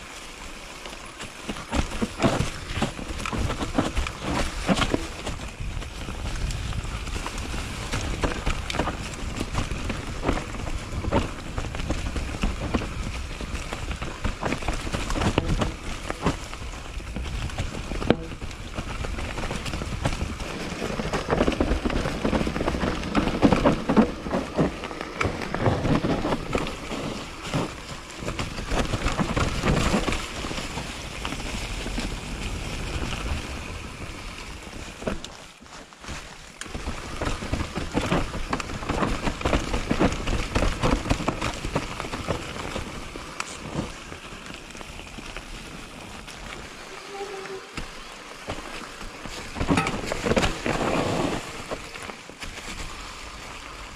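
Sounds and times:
bike tyres rolling over leaves: 0.0s - 53.9s
bike rattling and knocking: 0.7s - 53.9s
wind on microphone: 1.8s - 35.3s.

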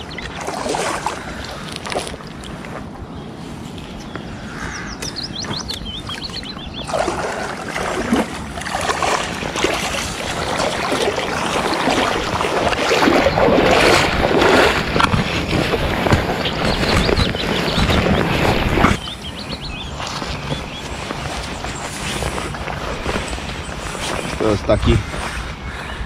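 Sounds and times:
wading splashes in shallow water: 0.0s - 3.7s, 4.6s - 25.6s
rustling on grassy bank: 0.0s - 25.8s.

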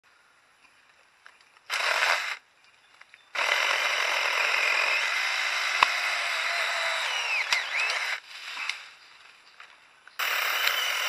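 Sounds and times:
handheld power saw running: 3.4s - 8.2s, 10.2s - 11.0s.

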